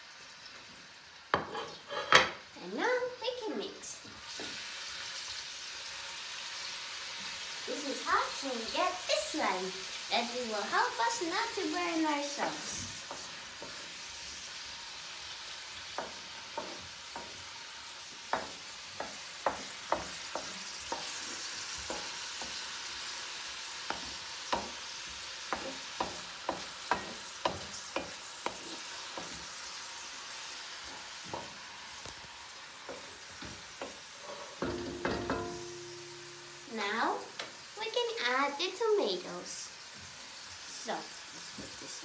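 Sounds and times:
onion sizzling in oil: 0.0 - 42.0
wooden spoon knocking pan: 15.9 - 17.5, 18.3 - 22.8, 23.8 - 29.4, 32.8 - 34.0, 34.6 - 36.7.

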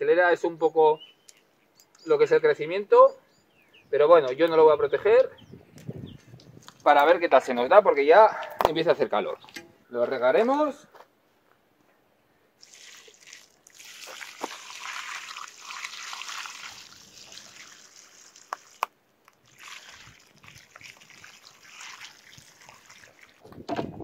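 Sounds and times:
water splashing onto stony soil: 12.6 - 23.5.

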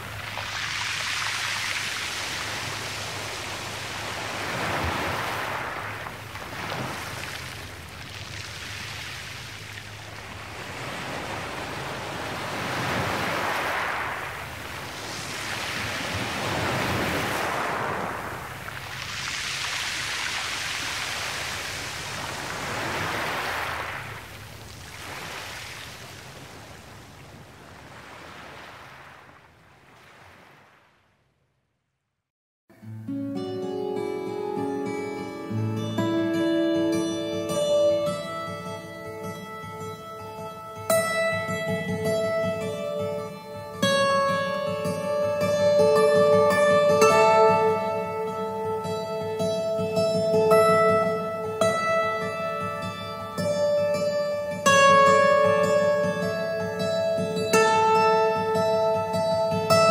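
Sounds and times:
waves washing on stony beach: 0.0 - 31.0, 34.6 - 59.9.

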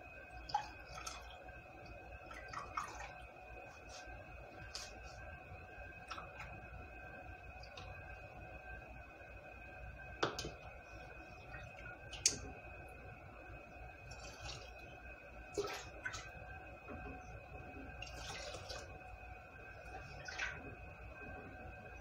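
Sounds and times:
faint hum: 0.0 - 22.0
water splashing and dripping: 0.4 - 5.2, 11.4 - 12.6, 14.1 - 17.2, 17.9 - 19.0, 19.8 - 20.8.

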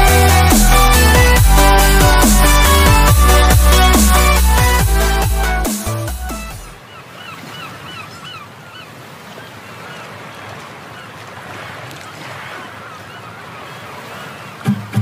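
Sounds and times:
falling bird-like calls: 6.7 - 14.7.

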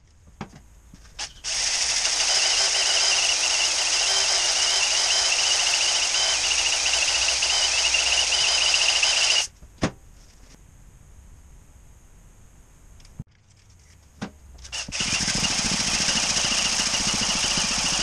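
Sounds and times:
drill honing cylinder whine: 1.4 - 9.5, 14.8 - 18.0.

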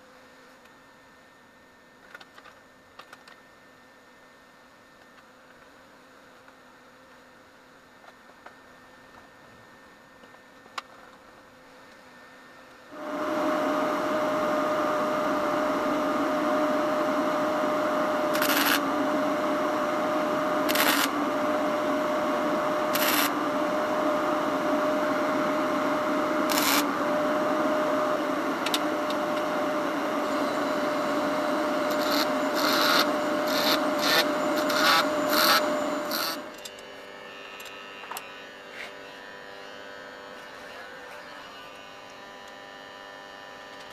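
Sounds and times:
low welder hum: 9.7 - 43.9
welding arc burning with pops: 18.3 - 18.8, 20.7 - 21.2, 22.9 - 23.4, 26.5 - 26.9, 31.8 - 36.6.

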